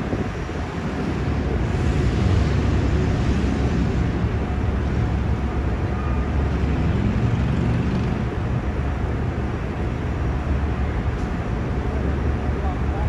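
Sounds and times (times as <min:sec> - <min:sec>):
wind buffeting microphone: 0:00.0 - 0:05.3
city traffic rumble: 0:00.0 - 0:13.0.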